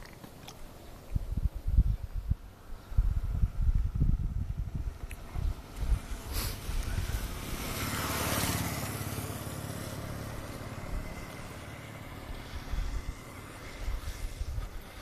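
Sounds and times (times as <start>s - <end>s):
vehicle driving past: 4.8s - 15.0s.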